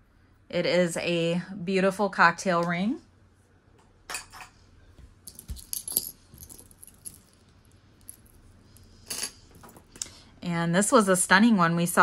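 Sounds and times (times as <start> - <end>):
metal jewelry clinking: 5.2 - 10.0.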